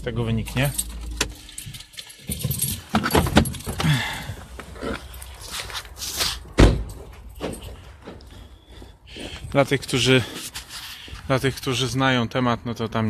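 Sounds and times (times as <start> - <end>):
handling clicks and rustling: 0.0 - 8.6
keys jangling: 0.4 - 8.3
loud thump: 6.6 - 6.9.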